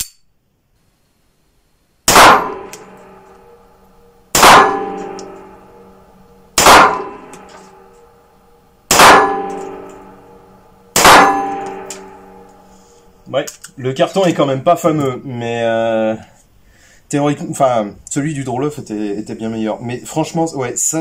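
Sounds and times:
pistol shots ringing: 2.1s - 12.7s.

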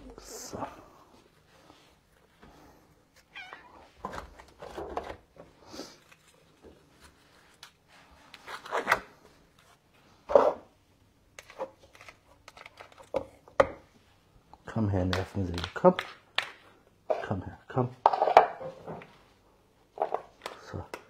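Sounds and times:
cats meowing: 3.2s - 4.0s.

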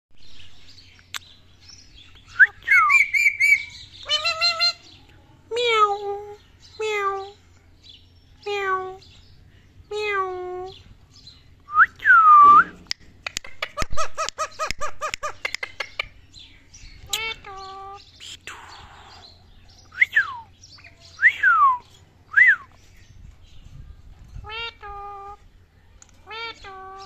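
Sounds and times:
parakeet calling and whistling: 2.2s - 4.8s.

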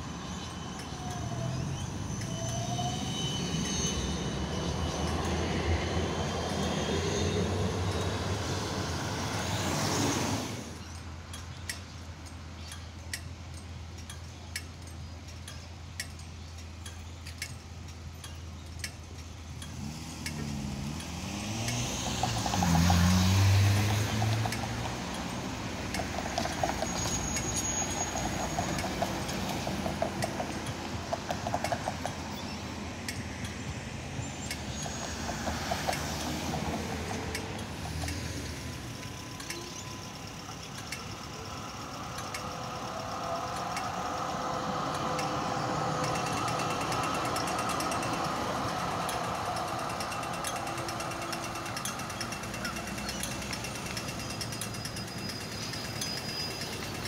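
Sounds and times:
vehicle engine pulling away: 0.0s - 11.1s, 19.5s - 57.0s
street traffic: 0.0s - 57.0s
tram rumbling along track: 0.0s - 57.0s
regular ticking: 10.7s - 22.8s, 23.8s - 57.0s.

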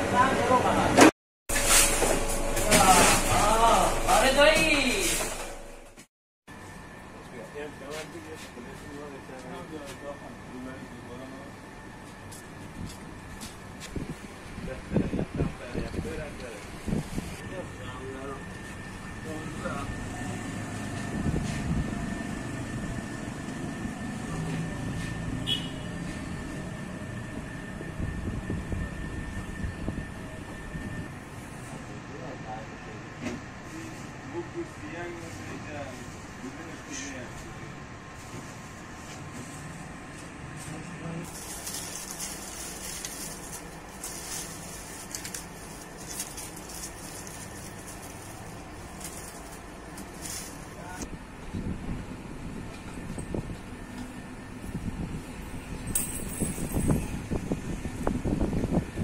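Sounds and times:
low mechanical motor rumble: 0.0s - 59.0s
onion skins crackling and rustling: 41.2s - 51.0s.

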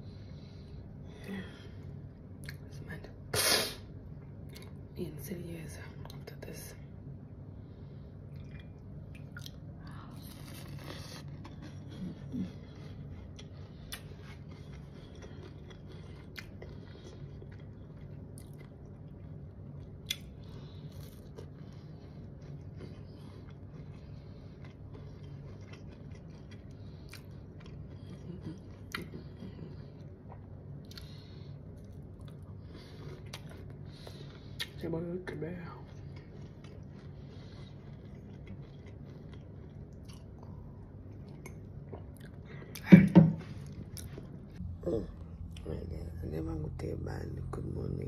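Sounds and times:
steady low hum: 0.0s - 48.0s
person chewing gummy: 8.3s - 42.9s.

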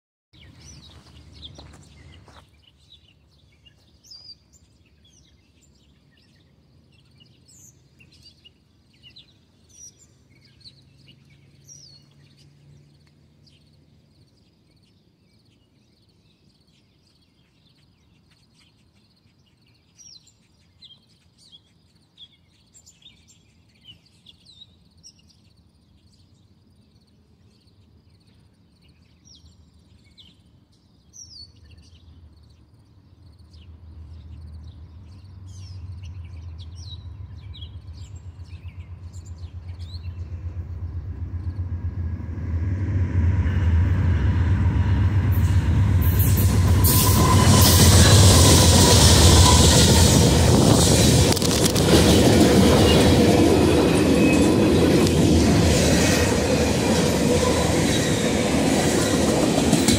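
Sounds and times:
birds chirping: 0.4s - 42.2s
low rumble: 33.6s - 58.6s.

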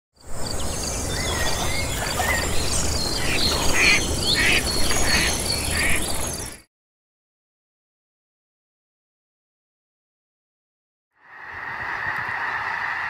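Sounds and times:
insects buzzing: 0.2s - 6.6s
bird calling: 0.4s - 6.6s.

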